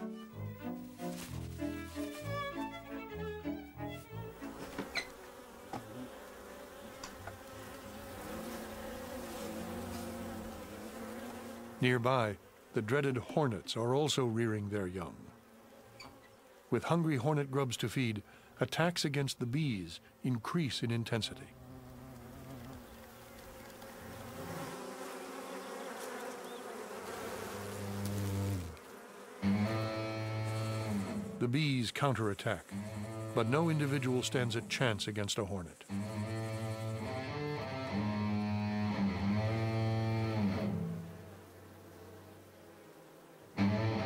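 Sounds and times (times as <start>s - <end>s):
hornet buzzing in flight: 0.0s - 13.2s, 15.0s - 16.7s, 21.4s - 35.0s, 35.7s - 44.0s
louder lower buzz: 29.4s - 31.4s, 35.9s - 42.1s, 43.5s - 44.0s.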